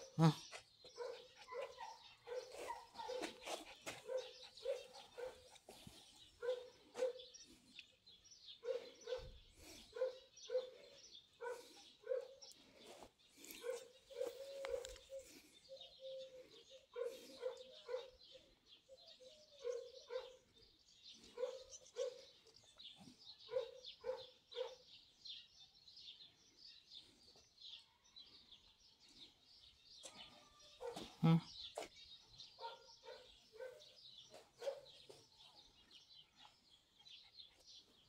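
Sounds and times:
small dog barking: 0:01.0 - 0:03.4, 0:06.4 - 0:07.2, 0:13.6 - 0:15.0.

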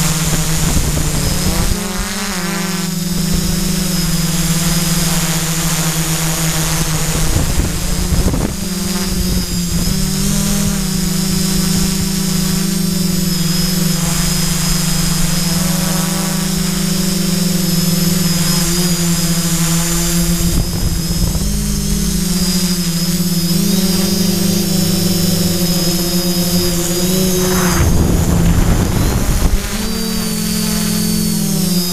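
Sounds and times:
drone propellers buzzing: 0:00.0 - 0:31.9
low rumbles: 0:19.8 - 0:31.2.

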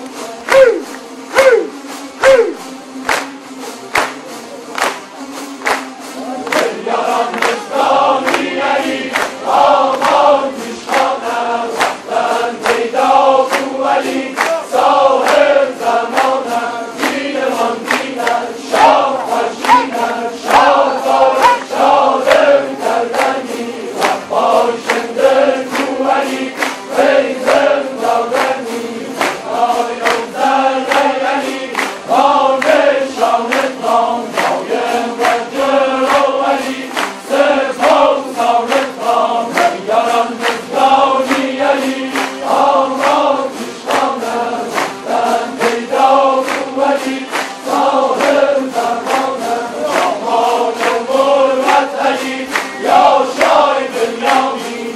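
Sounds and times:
lutes strummed in rhythm: 0:00.0 - 0:54.9
men chanting in unison: 0:06.5 - 0:54.9.

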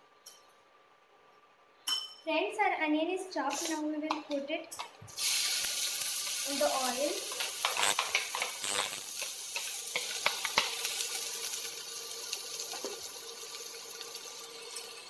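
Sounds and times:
onions sizzling in hot oil: 0:05.1 - 0:15.0.

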